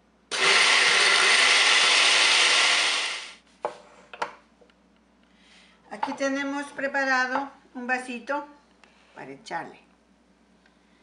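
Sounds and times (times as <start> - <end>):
blender blending ice: 0.3 - 3.4.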